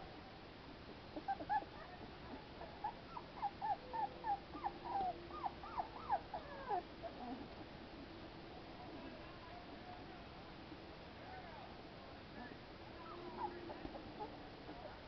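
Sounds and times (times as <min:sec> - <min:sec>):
puppies squeaking and whimpering: 0:01.2 - 0:02.0, 0:02.6 - 0:07.2, 0:13.1 - 0:15.0.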